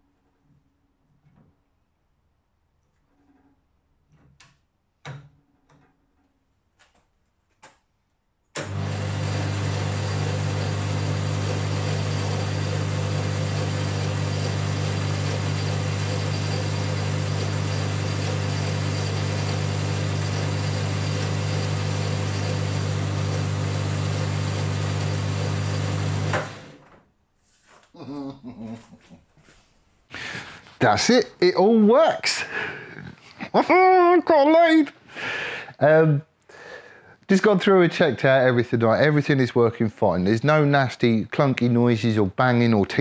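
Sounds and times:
lathe motor humming: 0:08.6 - 0:26.8.

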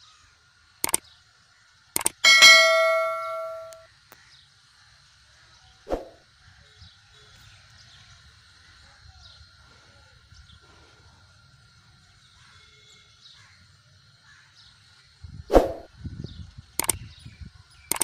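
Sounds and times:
birds chirping: 0:02.0 - 0:03.8, 0:15.6 - 0:18.0
electronic bell ding: 0:02.0 - 0:03.8.

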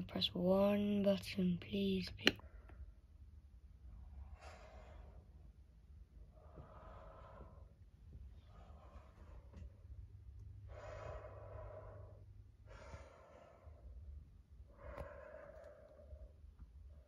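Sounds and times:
person breathing heavily: 0:06.3 - 0:07.8, 0:10.6 - 0:17.0.

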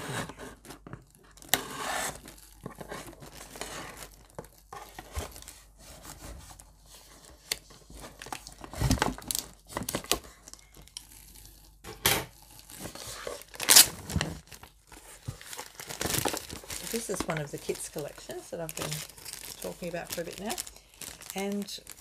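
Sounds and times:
cellophane wrap crinkling and ripping: 0:00.6 - 0:22.0.

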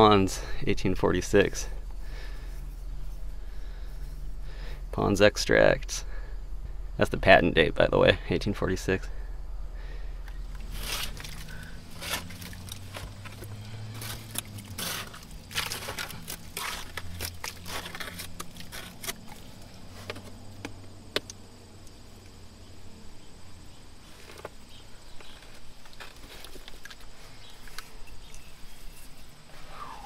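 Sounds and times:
low steady hum: 0:00.0 - 0:30.0
hands scraping through soil: 0:10.4 - 0:20.3.

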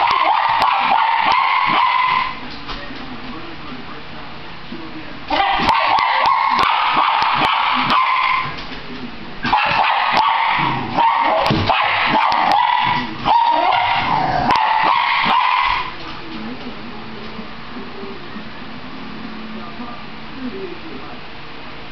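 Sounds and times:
dog barking and yipping: 0:00.0 - 0:02.4, 0:05.3 - 0:08.6, 0:09.5 - 0:15.9.

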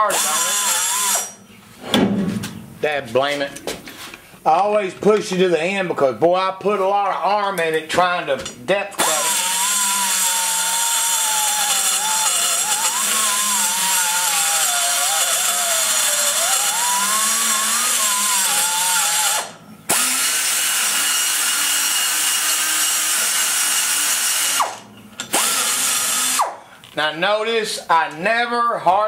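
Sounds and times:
die grinder cutting metal: 0:00.0 - 0:01.4, 0:09.0 - 0:26.5.

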